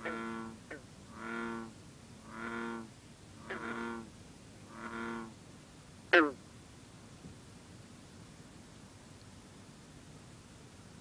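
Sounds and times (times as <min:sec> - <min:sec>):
bullfrog droning calls: 0:00.0 - 0:04.1, 0:04.7 - 0:05.4.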